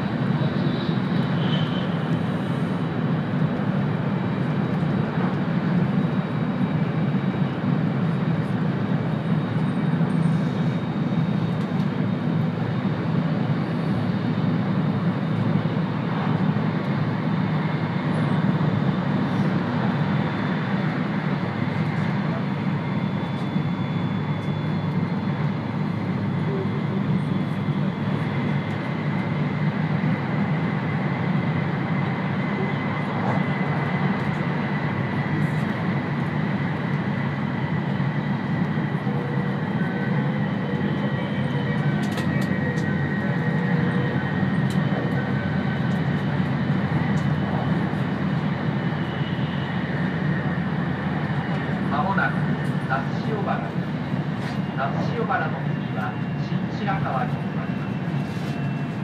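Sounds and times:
train running rumble: 13.6s - 59.0s.

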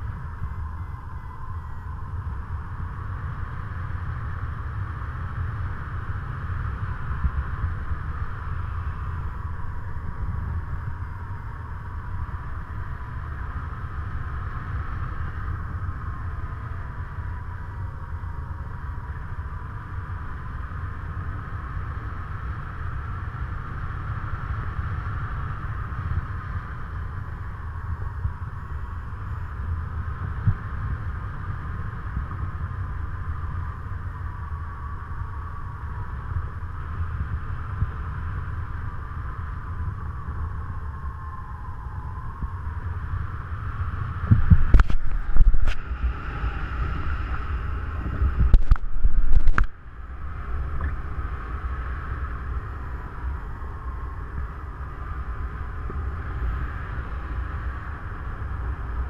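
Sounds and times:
wind buffeting microphone: 25.6s - 59.0s.

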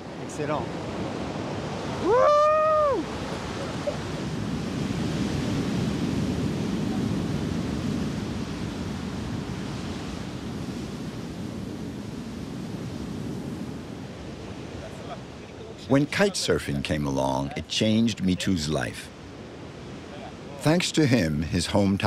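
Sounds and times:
ocean waves washing ashore: 0.0s - 22.0s
wind: 0.0s - 22.0s.

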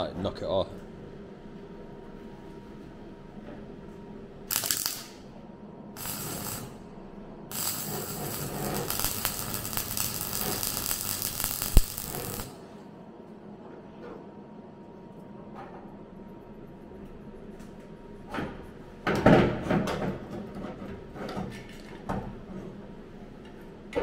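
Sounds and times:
welding arc crackling: 4.5s - 5.2s, 6.0s - 6.8s, 7.5s - 12.6s.

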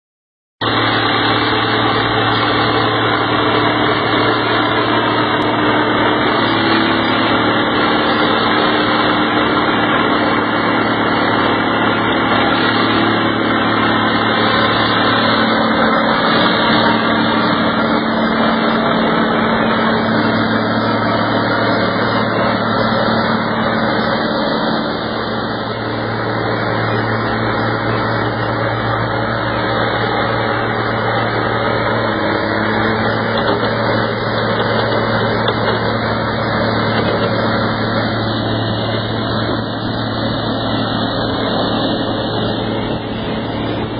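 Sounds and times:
tub grinder running: 0.6s - 43.9s.

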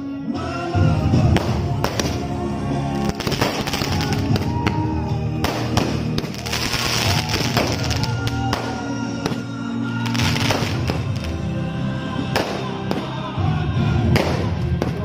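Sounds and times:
music playing: 0.0s - 15.0s
fireworks crackling and popping: 1.3s - 2.3s, 3.0s - 4.8s, 5.4s - 11.4s, 12.3s - 13.2s, 14.1s - 15.0s.

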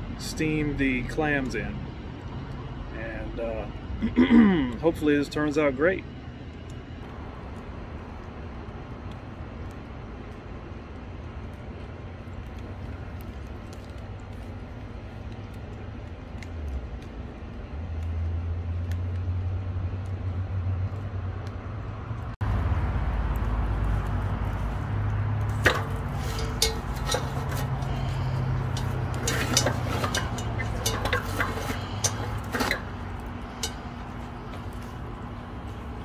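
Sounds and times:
fire crackling and popping: 0.0s - 36.0s
steady low rumble: 0.0s - 36.0s.

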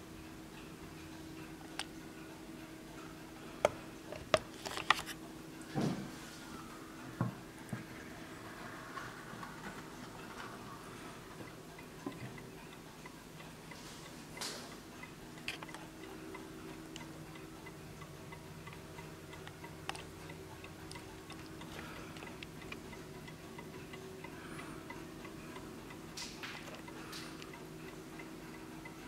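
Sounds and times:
clock ticking: 11.2s - 29.0s.

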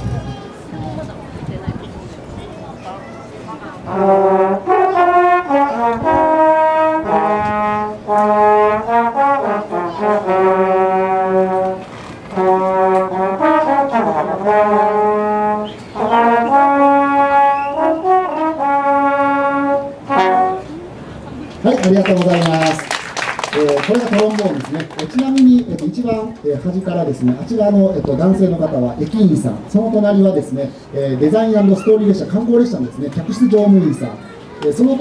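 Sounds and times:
trombones playing melody: 3.8s - 20.9s.

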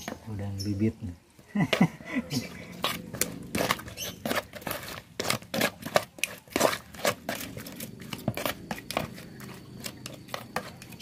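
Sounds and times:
stick knocking and scraping bowl: 2.7s - 11.0s.

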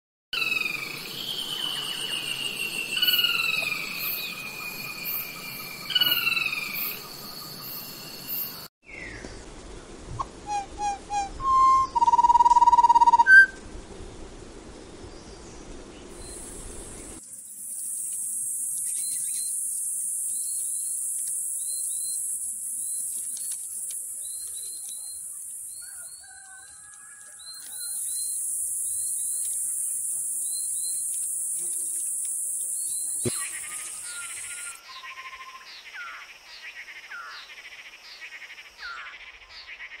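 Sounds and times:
high-pitched insect buzz: 0.4s - 8.7s, 16.1s - 25.8s, 27.4s - 36.2s.

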